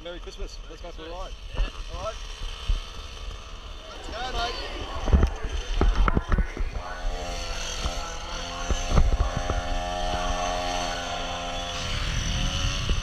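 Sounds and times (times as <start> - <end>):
skateboard motor drone: 0.8 - 13.0.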